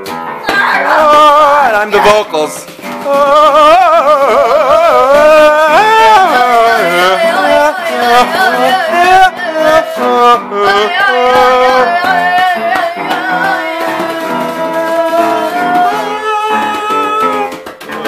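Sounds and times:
hand drum: 0.0 - 18.0
upright piano: 0.0 - 18.0
girl singing: 0.4 - 2.3, 2.9 - 18.0
wooden shaker: 11.8 - 18.0.

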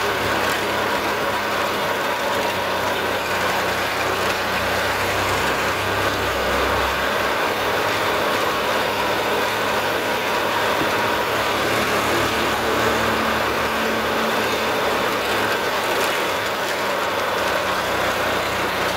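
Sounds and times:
tractor diesel engine running: 0.0 - 18.9.

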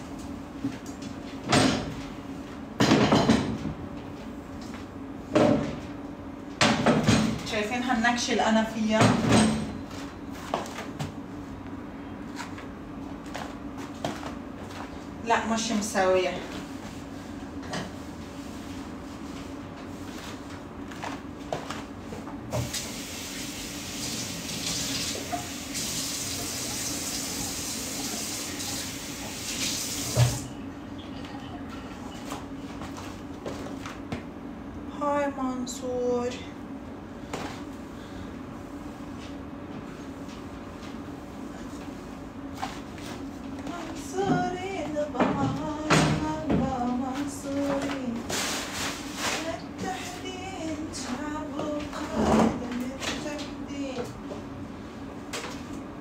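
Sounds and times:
low steady hum: 30.3 - 56.0.

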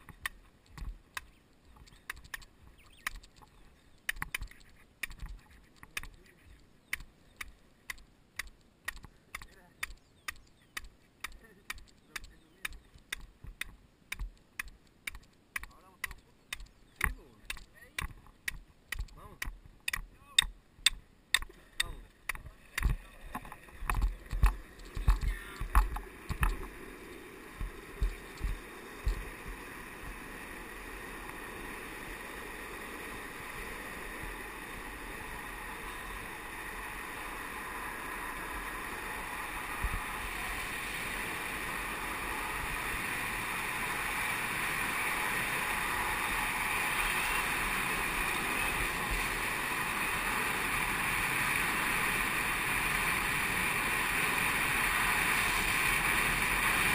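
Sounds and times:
longboards rolling on asphalt: 22.0 - 56.9
rushing wind: 22.4 - 56.9.

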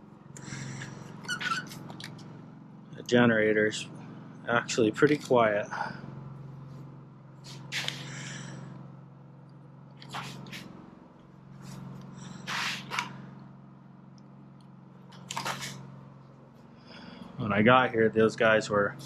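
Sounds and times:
portable generator humming: 0.0 - 19.0
short hissing bursts: 12.2 - 13.0.

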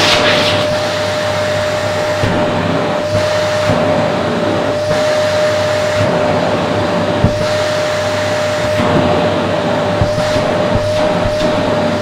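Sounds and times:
vacuum cleaner whining: 0.0 - 12.0
short thump: 10.0 - 11.7.

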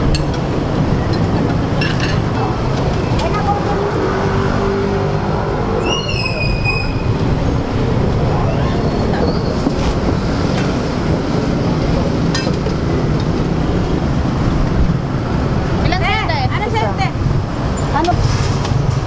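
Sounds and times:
traffic rumble on busy street: 0.0 - 19.0
high squeal: 5.8 - 7.2, 8.3 - 9.7.

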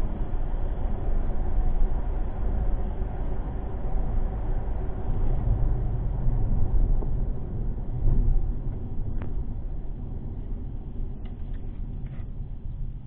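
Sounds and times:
car cabin rumble: 5.3 - 13.0.

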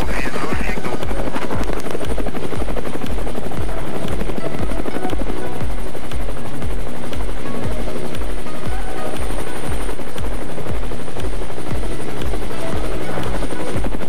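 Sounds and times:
helicopter rotor blades beating: 0.0 - 14.0
high engine whine: 0.0 - 14.0.

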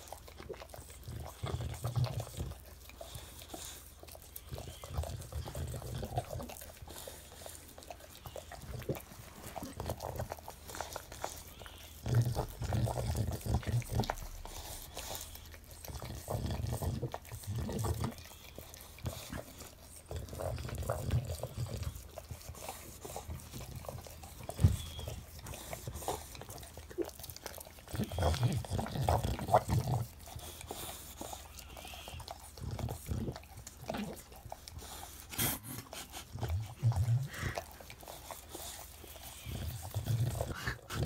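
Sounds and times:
dog licking with wet smacks: 0.0 - 41.0
dog snuffling breaths: 1.2 - 26.8, 27.8 - 41.0.

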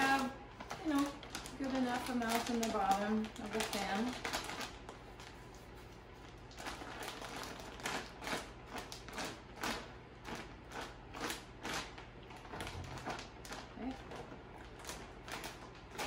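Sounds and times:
plastic bag crinkling: 0.0 - 16.0.

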